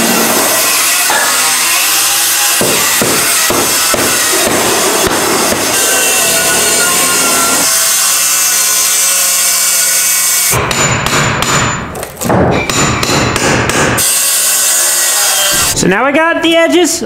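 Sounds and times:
hammer blows on hand tool: 0:00.0 - 0:08.6
circular saw running: 0:00.0 - 0:10.6, 0:14.0 - 0:15.8.

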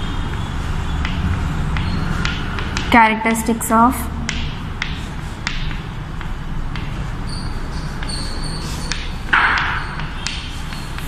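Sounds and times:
room noise: 0:00.0 - 0:11.0
chalk tapping on blackboard: 0:00.3 - 0:02.9, 0:04.3 - 0:07.0, 0:07.7 - 0:11.0
chalk squeak: 0:07.3 - 0:09.2.

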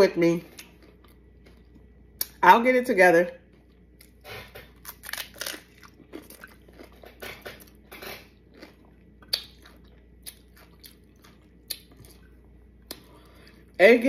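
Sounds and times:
chewing and biting: 0:03.7 - 0:13.1.

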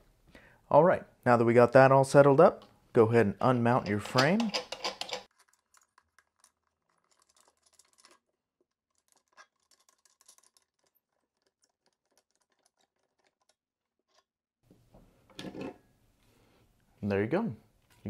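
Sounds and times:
faint clicks and scrapes: 0:03.8 - 0:14.3.

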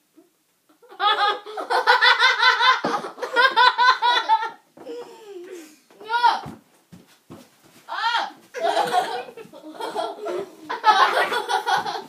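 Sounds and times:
children laughing: 0:00.7 - 0:05.1, 0:08.5 - 0:12.0.

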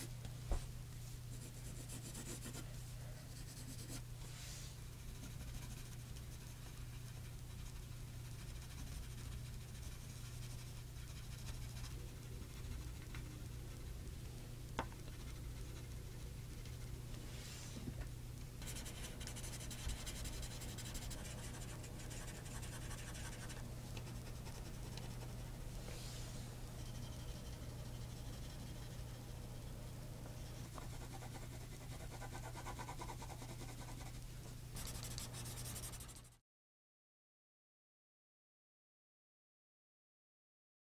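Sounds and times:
steady low hum: 0:00.0 - 0:36.4
pencil scratching on paper: 0:01.3 - 0:02.6, 0:03.3 - 0:04.0, 0:05.2 - 0:06.5, 0:07.2 - 0:12.9, 0:18.6 - 0:25.4, 0:26.8 - 0:29.4, 0:30.4 - 0:34.2, 0:34.8 - 0:36.4.

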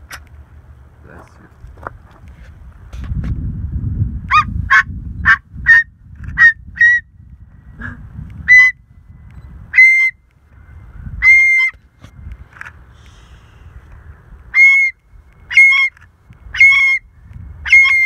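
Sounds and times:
cockatoo barking: 0:04.3 - 0:07.0, 0:07.8 - 0:08.8, 0:11.2 - 0:11.7, 0:14.5 - 0:15.9, 0:16.6 - 0:17.0, 0:17.7 - 0:18.0.

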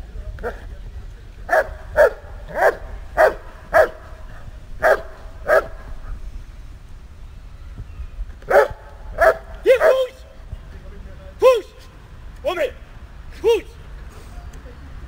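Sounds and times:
dog barking: 0:01.5 - 0:04.0, 0:04.8 - 0:05.8, 0:08.5 - 0:10.1.

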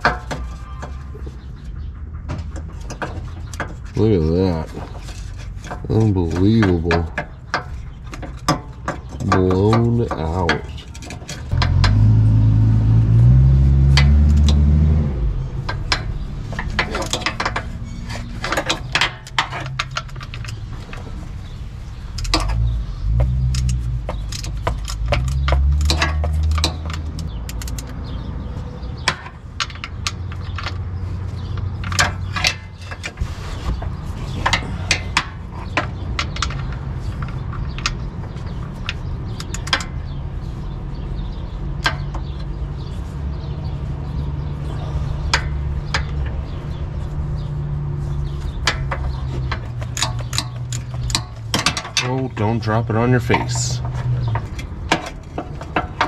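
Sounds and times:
hand tools clinking on metal: 0:48.3 - 0:56.0.

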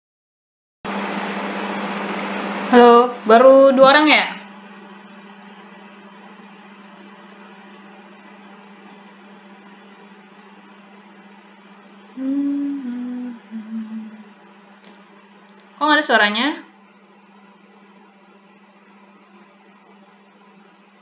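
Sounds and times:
low electrical hum: 0:00.9 - 0:21.0
person humming low notes: 0:12.1 - 0:14.3.

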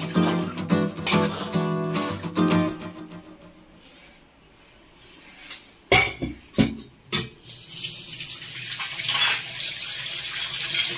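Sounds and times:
running water: 0:07.5 - 0:10.9.

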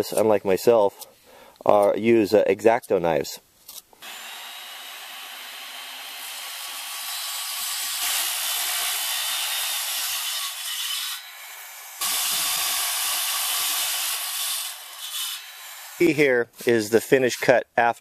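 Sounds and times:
circular saw cutting wood: 0:04.0 - 0:17.6.

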